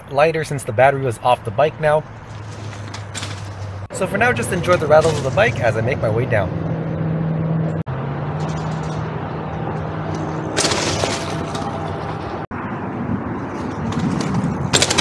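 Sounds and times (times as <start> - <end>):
bike rattling on rough trail: 2.2 - 5.8, 10.2 - 12.2, 13.6 - 15.0.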